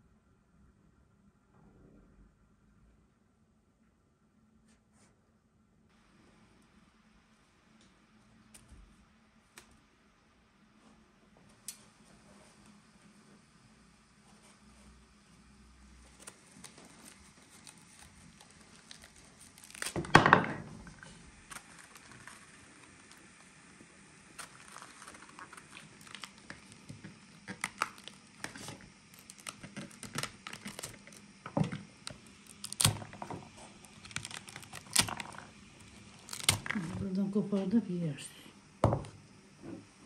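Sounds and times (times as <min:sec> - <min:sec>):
hands tearing food: 0:16.1 - 0:20.1, 0:24.4 - 0:31.3, 0:32.1 - 0:36.9.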